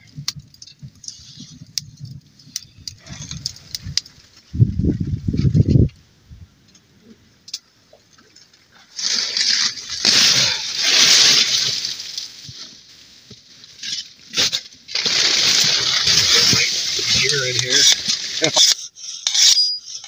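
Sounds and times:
plastic tarp rustling: 0:08.9 - 0:12.8, 0:13.9 - 0:18.6.

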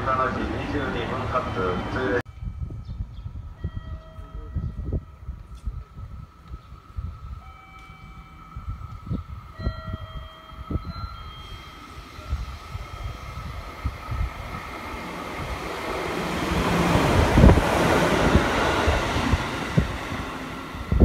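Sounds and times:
wind buffeting microphone: 0:02.3 - 0:21.0
electric train passing: 0:03.4 - 0:21.0.

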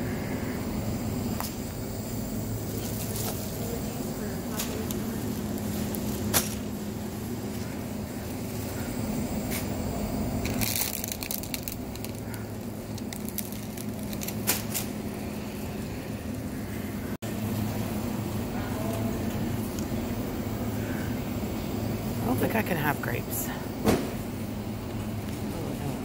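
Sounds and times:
low hum of a supermarket: 0:00.0 - 0:26.0
shopping cart clicks and rustle: 0:10.4 - 0:15.0.

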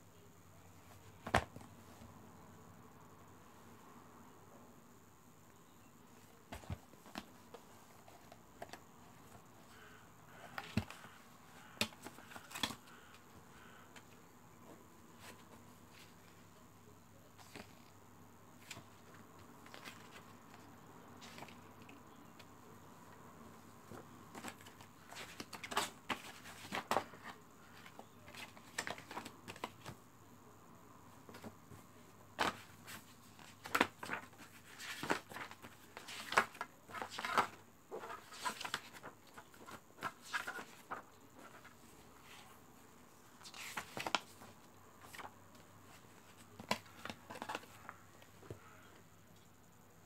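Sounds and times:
paper leaflets rustling: 0:32.4 - 0:42.6, 0:43.4 - 0:48.0.

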